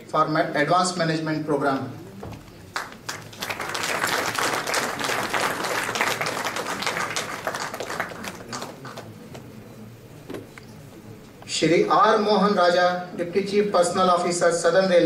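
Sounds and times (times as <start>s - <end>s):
audience applauding: 2.7s - 9.2s.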